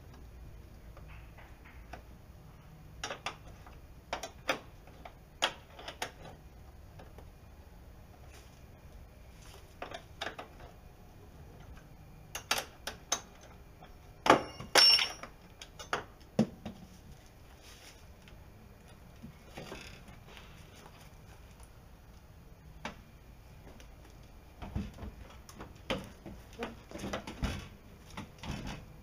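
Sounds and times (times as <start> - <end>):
metal clinks and knocks: 14.2 - 16.0.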